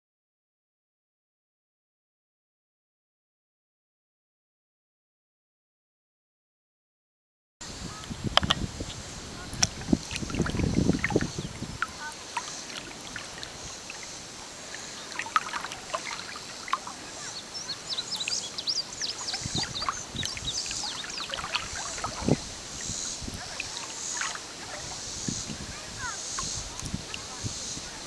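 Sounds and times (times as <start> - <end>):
wind rumble on microphone: 7.6 - 13.9, 17.0 - 23.9, 24.5 - 28.0
birds chirping and singing: 7.8 - 28.0
water lapping against a float: 7.8 - 28.0.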